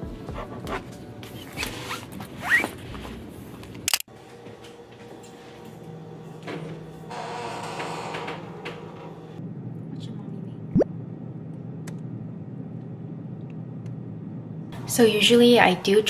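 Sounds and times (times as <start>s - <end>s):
steady low hum: 9.3s - 15.0s.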